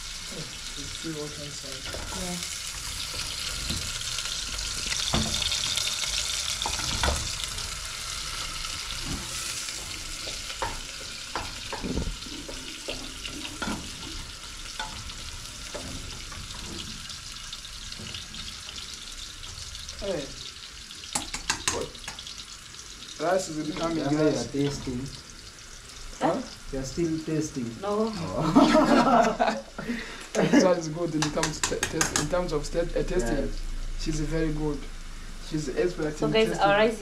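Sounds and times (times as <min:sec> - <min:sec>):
onions sizzling in a pot: 0:00.0 - 0:37.0
utensils knocking against pots: 0:10.0 - 0:17.2, 0:21.1 - 0:22.2, 0:31.2 - 0:32.4.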